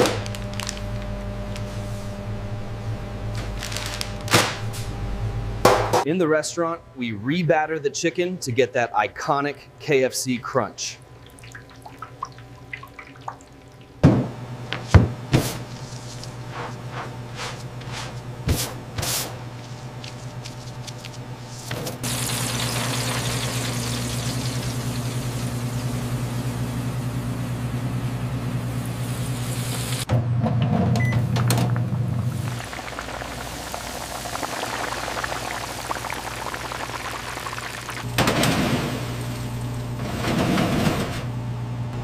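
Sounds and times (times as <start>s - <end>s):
chicken frying in hot oil: 22.0s - 30.1s, 31.7s - 38.2s.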